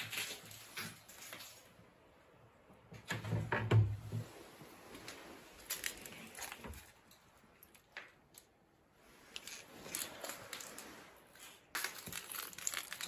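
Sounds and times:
cupboard doors clicking and knocking: 3.0 - 4.3.

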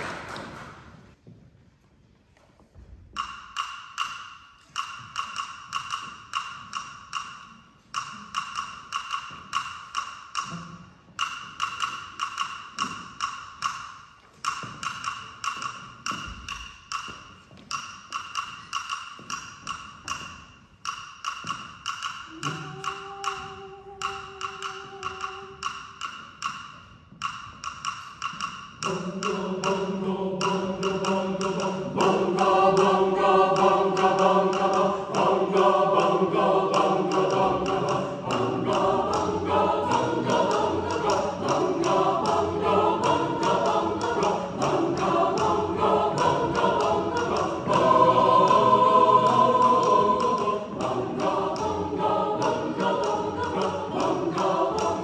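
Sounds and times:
wooden hand percussion clicking: 3.1 - 55.0
choir singing: 22.2 - 26.0, 28.8 - 55.0.

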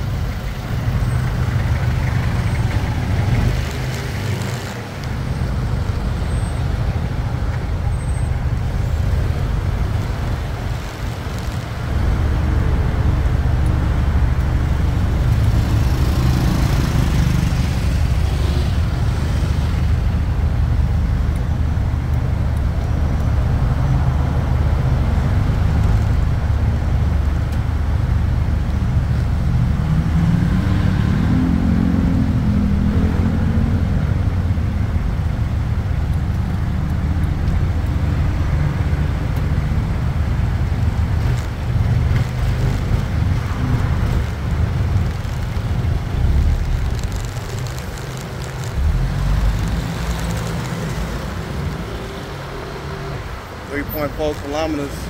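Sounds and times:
low road rumble: 0.0 - 55.0
engine revving: 9.0 - 19.8, 29.4 - 34.2, 40.8 - 55.0.

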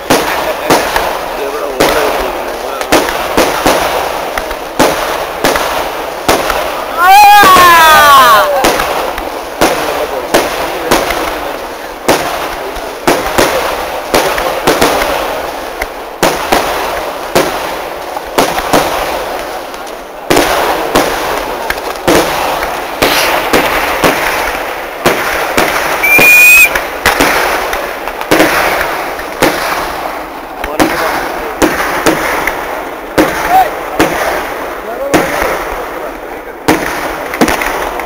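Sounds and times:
firecracker bangs with echo: 0.0 - 38.0
high firework whistle: 25.9 - 26.9.

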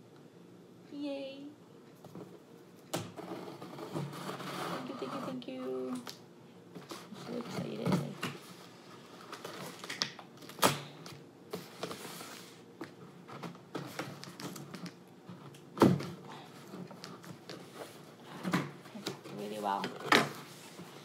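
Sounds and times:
cardboard rustling and scraping: 3.2 - 5.6, 6.8 - 10.0, 11.5 - 21.0.

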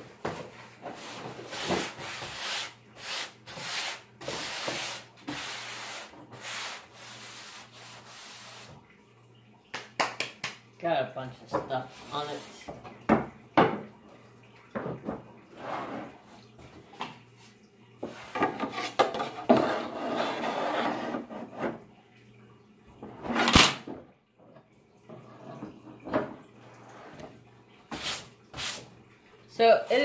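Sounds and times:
ruler rubbing and scraping wood: 18.2 - 21.8.

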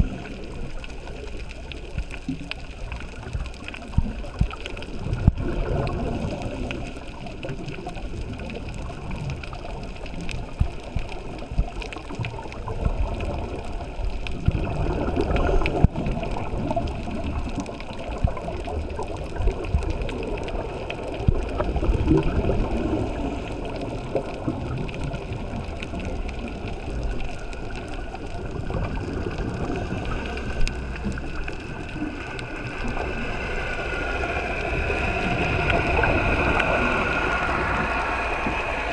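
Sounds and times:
muffled underwater noise: 0.0 - 38.9
scuba exhaust bubbles gurgling: 0.0 - 38.9.

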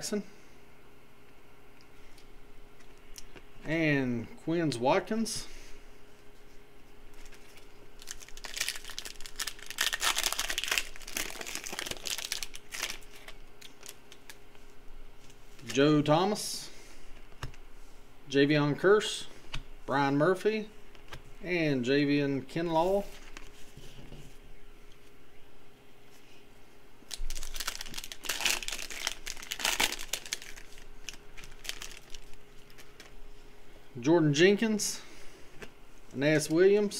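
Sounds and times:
foil wrapper crinkling: 7.1 - 14.6, 27.1 - 33.2
foil tearing open: 7.3 - 14.3, 27.1 - 33.1.

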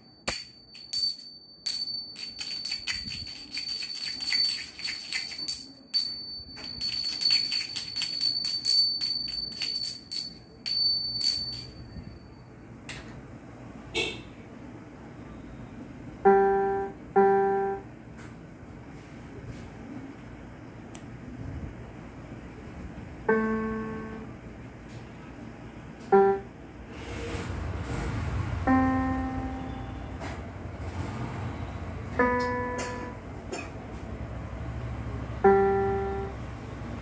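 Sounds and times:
hand cymbals clashing: 0.0 - 12.0
toy electronic keyboard notes: 16.2 - 17.8, 23.3 - 24.3, 26.1 - 26.6, 28.7 - 29.9, 32.2 - 33.2, 35.4 - 36.5.

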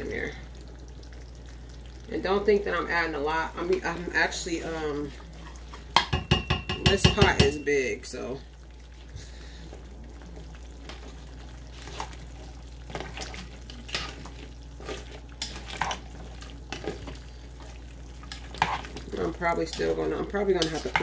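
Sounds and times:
low steady hum: 0.0 - 21.0
spoon clinking and scraping pot: 5.4 - 7.8.

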